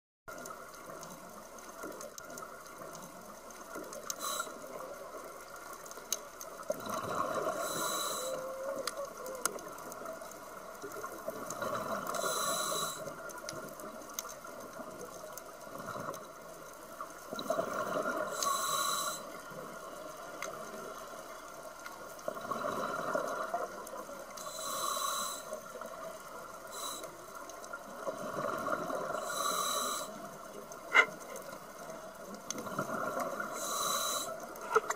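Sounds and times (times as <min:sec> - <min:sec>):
steady hiss: 0:03.4 - 0:06.6, 0:07.2 - 0:11.0, 0:11.6 - 0:13.5, 0:18.2 - 0:34.9.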